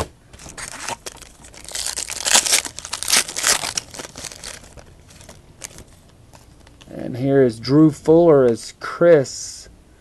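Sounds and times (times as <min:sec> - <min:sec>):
plastic packaging crinkling: 0:00.4 - 0:06.9.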